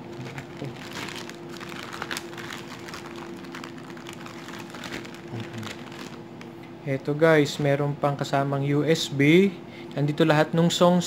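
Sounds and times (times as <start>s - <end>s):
plastic bag rustling: 0.0s - 6.4s
steady background hum: 0.0s - 11.0s.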